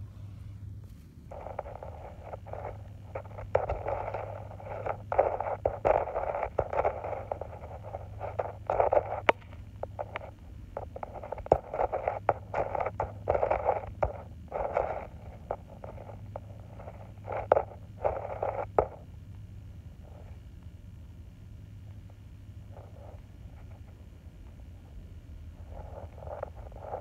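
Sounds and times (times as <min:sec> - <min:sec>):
scraping on dry dirt: 0:00.8 - 0:19.1, 0:25.5 - 0:27.0.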